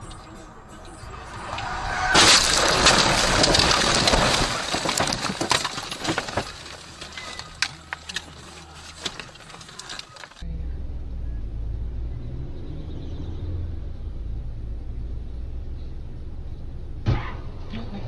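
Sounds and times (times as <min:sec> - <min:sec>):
car crash: 0:00.9 - 0:10.4, 0:17.0 - 0:17.8
glass and debris clinking: 0:00.9 - 0:10.4
windshield cracking: 0:01.1 - 0:10.4
low hum: 0:10.4 - 0:18.0.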